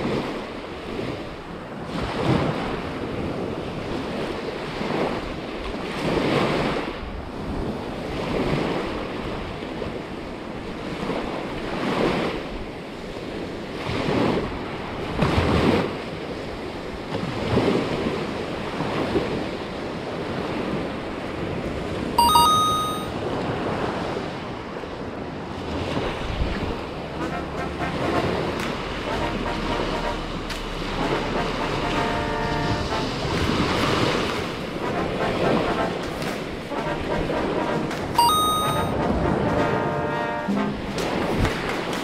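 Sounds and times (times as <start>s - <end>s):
surf waves washing onto beach: 0.0s - 42.0s
high two-note chirp: 22.2s - 23.1s, 38.2s - 39.1s, 40.4s - 41.0s.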